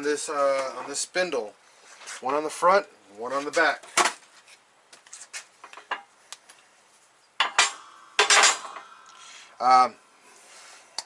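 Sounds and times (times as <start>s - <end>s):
metal clanks ringing: 7.4s - 9.0s.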